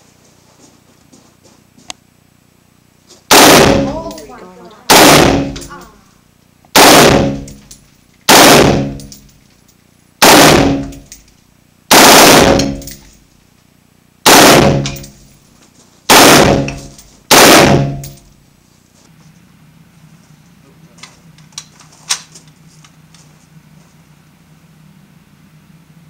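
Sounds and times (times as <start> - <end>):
long echo of gunfire: 3.3 - 4.1, 4.9 - 5.8, 6.7 - 7.6, 8.3 - 9.1, 10.2 - 11.1, 11.9 - 13.0, 14.2 - 15.1, 16.1 - 18.2
automatic rifle bursts: 3.3 - 4.2, 4.9 - 5.8, 6.8 - 7.6, 8.3 - 9.2, 10.2 - 11.2, 11.9 - 13.0, 14.3 - 15.2, 16.1 - 18.2.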